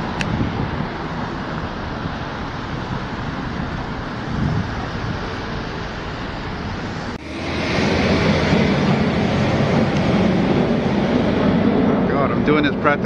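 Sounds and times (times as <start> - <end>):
road traffic rushing: 0.0 - 13.0
wind on microphone: 0.0 - 13.0.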